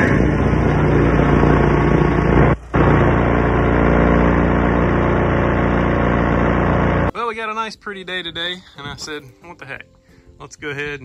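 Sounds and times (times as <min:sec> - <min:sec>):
diesel engine running: 0:00.0 - 0:07.1.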